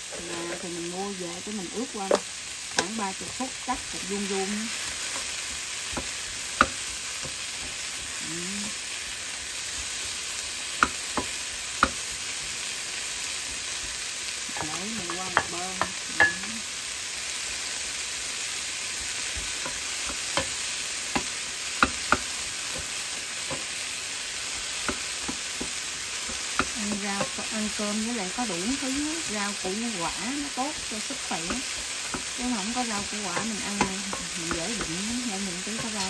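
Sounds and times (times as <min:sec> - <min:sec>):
vegetables sizzling in oil: 0:00.0 - 0:36.0
spatula knocking against pan: 0:19.3 - 0:23.7.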